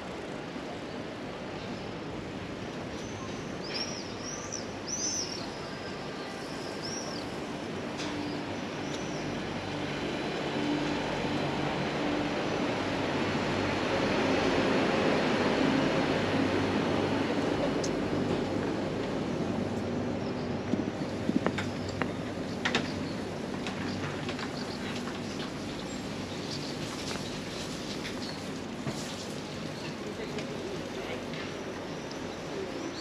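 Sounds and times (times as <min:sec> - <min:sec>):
outdoor background noise: 0:00.0 - 0:33.0.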